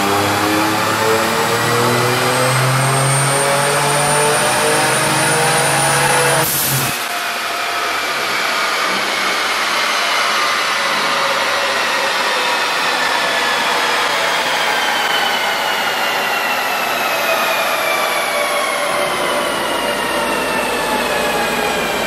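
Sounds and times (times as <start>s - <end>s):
car engine revving at full throttle: 0.0s - 9.8s.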